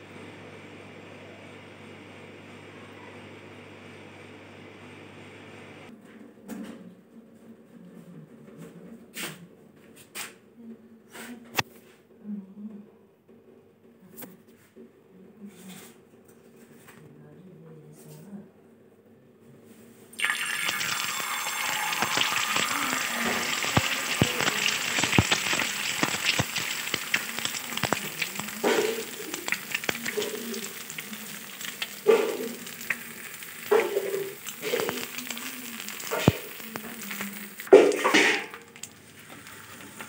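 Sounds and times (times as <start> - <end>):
egg sizzling with oil pops: 20.2 - 40.0
egg hitting a hot griddle: 20.7 - 30.7.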